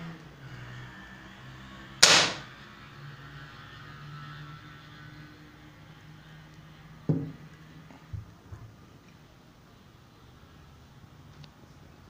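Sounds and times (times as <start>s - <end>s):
air rifle crack: 2.0s - 2.5s.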